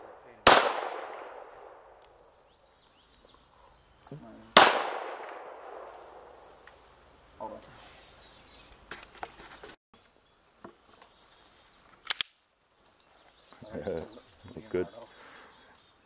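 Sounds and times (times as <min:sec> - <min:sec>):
gunshot echo: 0:00.0 - 0:02.0, 0:04.6 - 0:06.5
handgun shot crack: 0:00.4 - 0:01.8, 0:04.6 - 0:06.0
small sharp clicks: 0:12.0 - 0:12.4.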